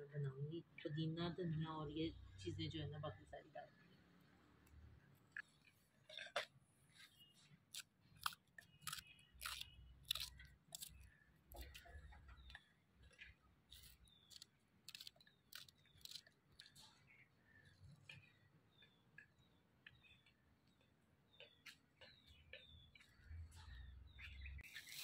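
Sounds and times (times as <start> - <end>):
knife slicing chillies: 7.2 - 12.0, 13.7 - 16.8.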